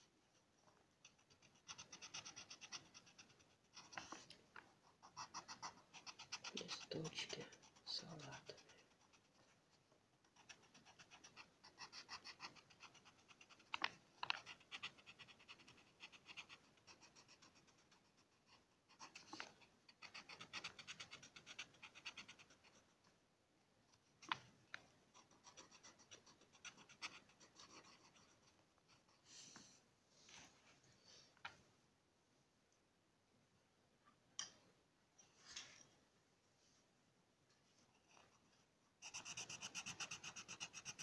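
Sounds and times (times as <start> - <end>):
pencil scratching on paper: 1.0 - 9.6, 10.2 - 22.9, 25.1 - 29.6, 37.9 - 41.0.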